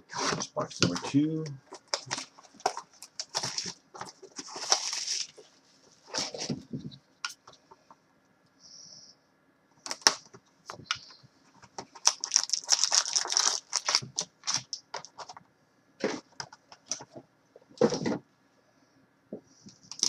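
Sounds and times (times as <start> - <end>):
foil packs crinkling: 0.1 - 6.6, 9.8 - 11.1, 11.8 - 15.4
cardboard crackling: 0.1 - 6.8, 9.8 - 15.4.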